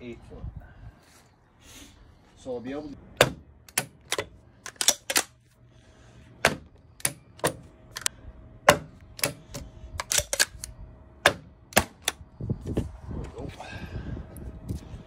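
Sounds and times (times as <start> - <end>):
nailer firing nails into wood: 3.2 - 4.2, 6.4 - 7.6, 8.6 - 10.2, 11.2 - 12.2.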